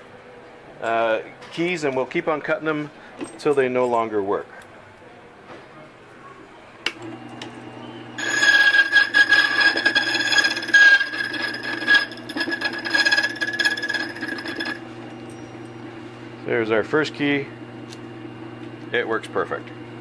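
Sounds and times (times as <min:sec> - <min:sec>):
motor humming: 0:07.0 - 0:15.3.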